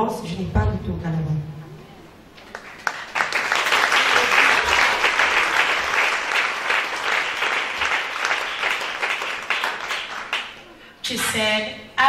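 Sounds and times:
crowd applauding: 0:02.4 - 0:10.8.

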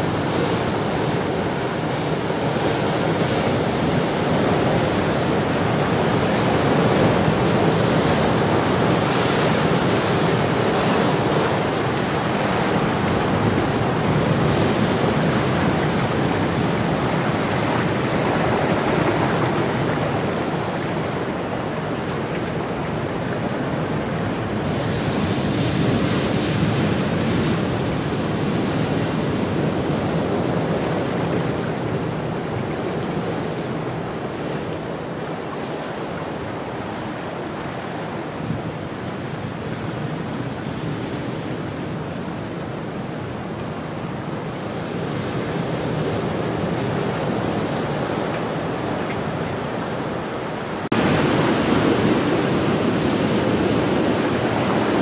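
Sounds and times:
surf breaking on rocks: 0:50.6 - 0:55.0.

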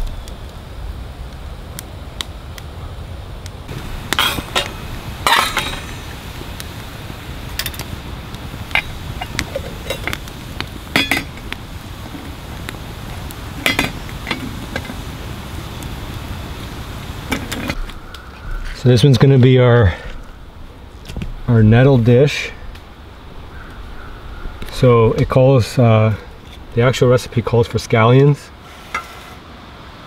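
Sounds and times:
steady low rumble: 0:00.0 - 0:27.4
metal cookware clinking and scraping: 0:04.1 - 0:06.1, 0:08.7 - 0:10.2, 0:10.9 - 0:11.4, 0:13.6 - 0:15.0.

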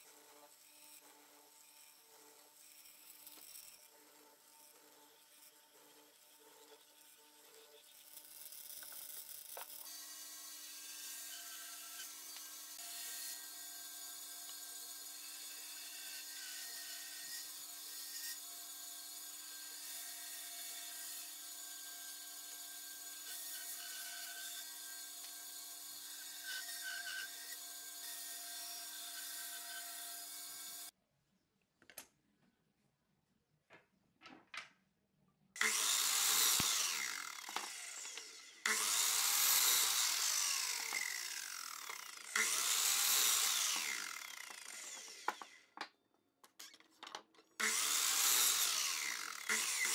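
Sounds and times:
power tool humming: 0:35.6 - 0:45.7, 0:47.6 - 0:49.9
miter saw cutting: 0:35.6 - 0:45.8, 0:47.6 - 0:49.9.

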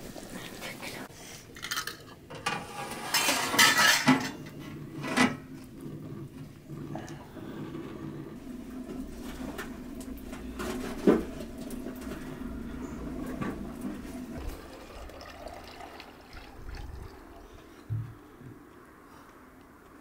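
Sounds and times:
wood fire crackling: 0:07.7 - 0:17.8.

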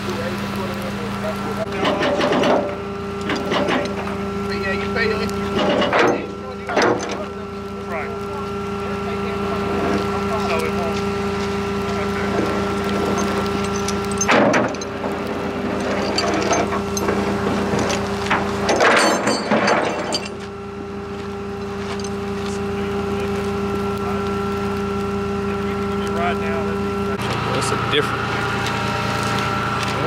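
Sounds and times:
loud noisy disturbances: 0:00.0 - 0:30.0
vehicle engine running: 0:00.0 - 0:30.0.

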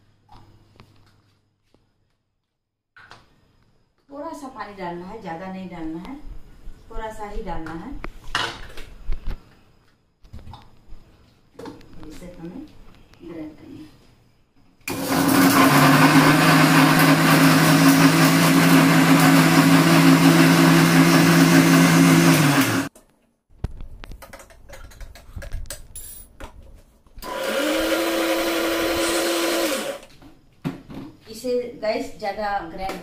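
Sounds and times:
mixer grinder running: 0:14.9 - 0:22.9, 0:27.2 - 0:30.1.

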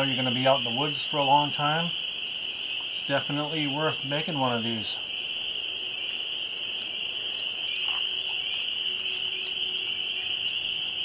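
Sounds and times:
chorus of frogs calling: 0:00.0 - 0:11.0
dry leaves crackling: 0:04.4 - 0:11.0.

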